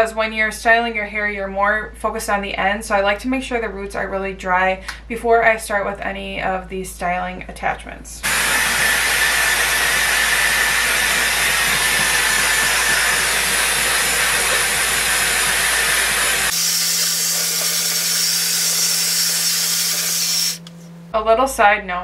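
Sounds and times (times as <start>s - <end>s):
hair dryer blowing air: 8.2s - 20.8s
high whine: 8.2s - 21.1s.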